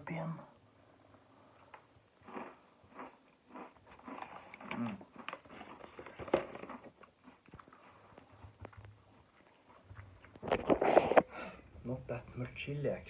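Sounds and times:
person crunching chip: 2.2s - 7.7s.

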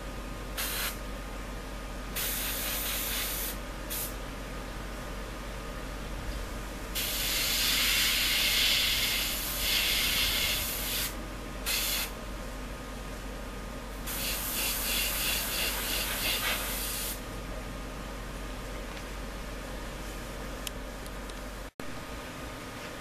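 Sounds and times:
airbrush spraying hiss: 0.6s - 1.0s, 2.2s - 4.2s, 7.0s - 12.1s, 14.1s - 17.2s.

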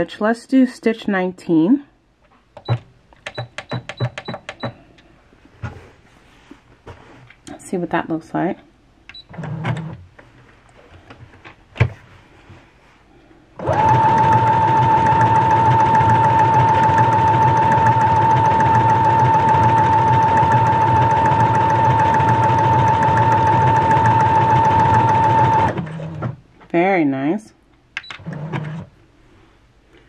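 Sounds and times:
sewing machine motor whine: 13.6s - 26.0s.

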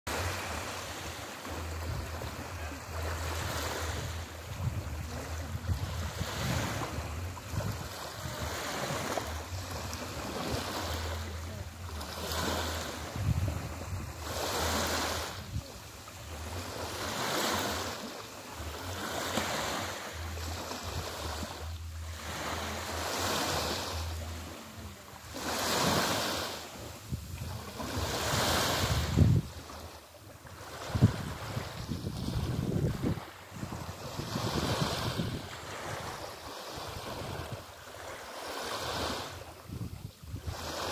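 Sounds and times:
small waves lapping on sand: 0.1s - 40.9s
wind buffeting microphone: 1.6s - 16.4s, 27.0s - 29.9s, 30.5s - 37.8s, 38.8s - 40.9s.

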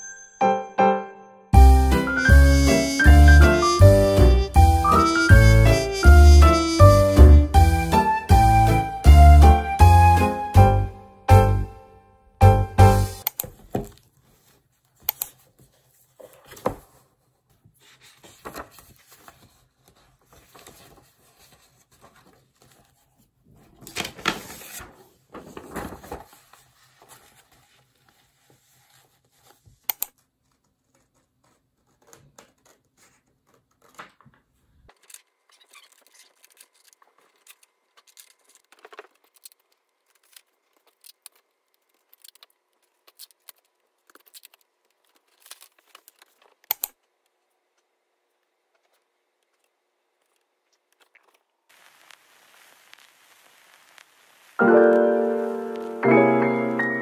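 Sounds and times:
paper pages rustling: 13.5s - 46.8s, 48.7s - 54.1s
scissors cutting paper: 29.8s - 34.2s, 34.9s - 46.9s.

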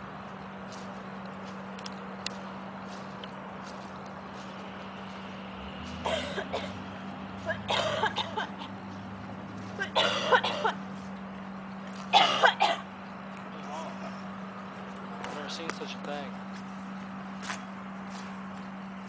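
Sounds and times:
low hum: 0.0s - 19.0s
person coughing hard: 6.0s - 6.8s, 7.5s - 8.7s, 9.8s - 10.8s, 12.1s - 12.8s.

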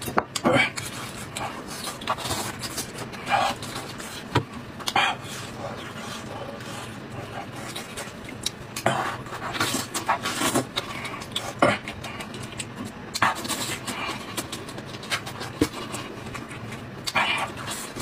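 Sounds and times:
wet chewing and lip-smacking: 4.8s - 8.9s, 9.5s - 18.0s.

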